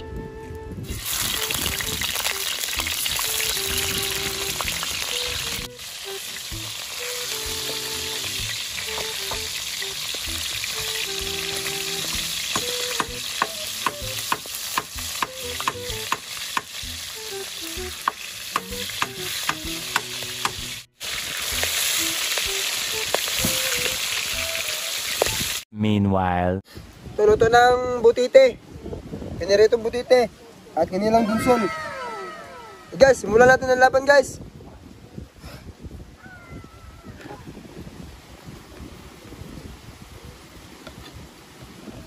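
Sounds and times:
fish sizzling in hot oil: 0:00.9 - 0:25.6.

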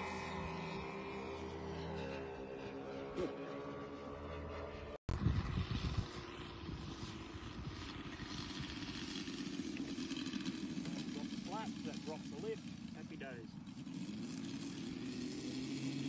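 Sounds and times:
model airplane engines droning: 0:00.0 - 0:16.0
wind rumbling on microphone: 0:05.1 - 0:11.1.

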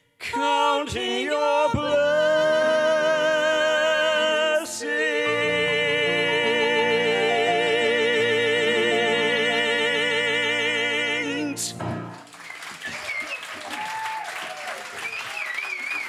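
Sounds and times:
man and woman singing duet: 0:00.2 - 0:11.8.

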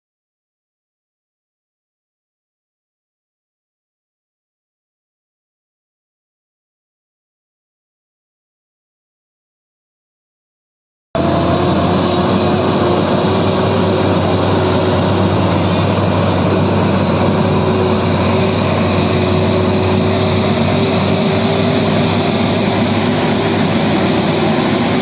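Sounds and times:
diesel truck engines droning: 0:11.2 - 0:25.0.

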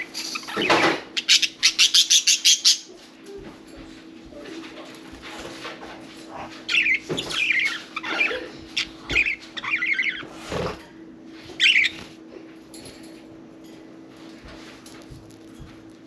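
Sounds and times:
faint low hum: 0:00.0 - 0:16.0
budgerigars chirping: 0:06.7 - 0:10.3, 0:11.6 - 0:12.0.

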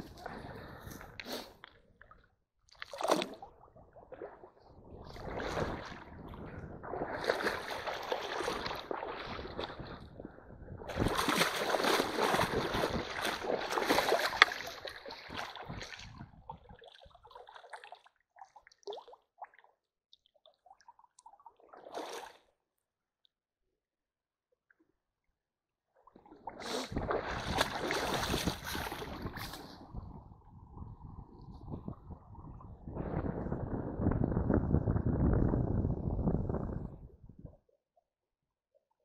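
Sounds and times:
feet wading through water: 0:02.7 - 0:10.2, 0:10.8 - 0:19.7, 0:20.5 - 0:22.4, 0:26.1 - 0:29.9.

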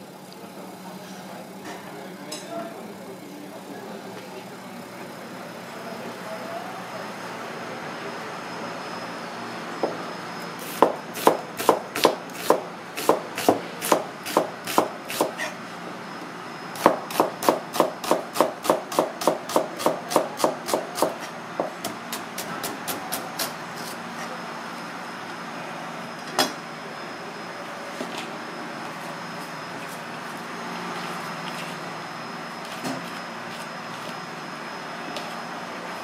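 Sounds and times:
knife slicing onion on board: 0:10.7 - 0:15.5, 0:16.8 - 0:21.2.

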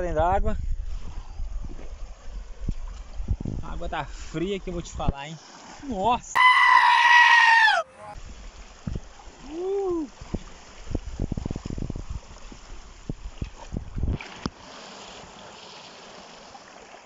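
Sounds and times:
wind noise on microphone: 0:00.0 - 0:05.2, 0:08.2 - 0:14.5
voice-like call: 0:06.4 - 0:08.2.

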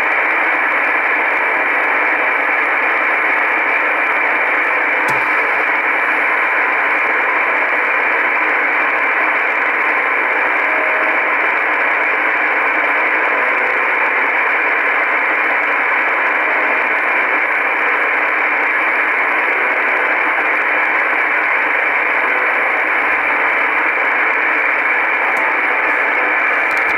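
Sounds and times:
radio static hiss: 0:00.2 - 0:12.2, 0:16.4 - 0:26.9
faint buzzing radio tone: 0:10.0 - 0:14.0, 0:18.7 - 0:26.9.

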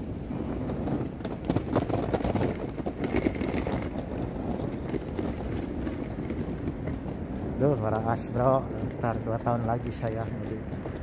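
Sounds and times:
handheld camera rubbing and knocking: 0:00.7 - 0:07.2.

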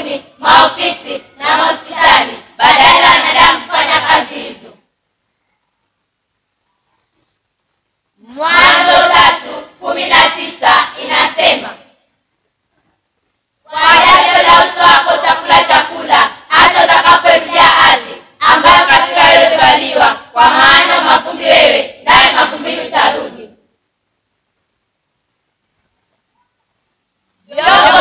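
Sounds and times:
girls chanting in unison: 0:00.0 - 0:04.8, 0:08.2 - 0:12.0, 0:13.7 - 0:23.6, 0:27.4 - 0:28.0.

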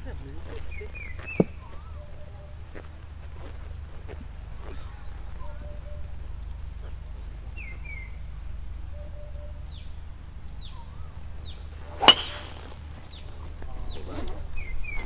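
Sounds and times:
voices: 0:00.0 - 0:08.2, 0:08.9 - 0:15.0
birds chirping: 0:00.0 - 0:15.0
golf ball struck by club: 0:11.9 - 0:12.8.

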